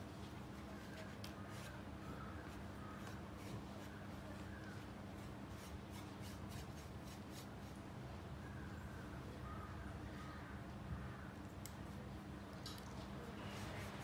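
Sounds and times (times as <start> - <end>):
paintbrush scratching: 0.8 - 7.8, 13.4 - 14.0.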